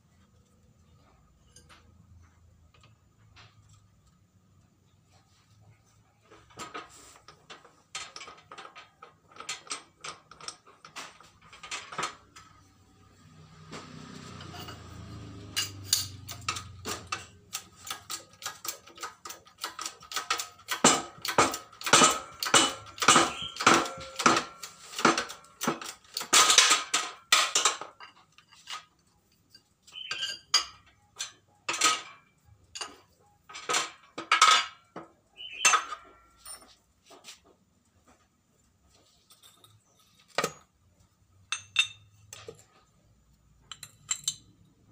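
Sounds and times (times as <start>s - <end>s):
hydraulic press metal clacking: 15.6s - 28.0s.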